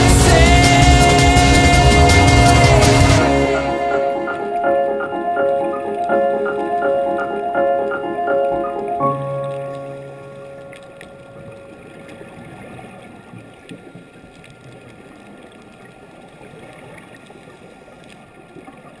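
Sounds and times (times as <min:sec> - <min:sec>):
background music note: 0:00.0 - 0:12.4.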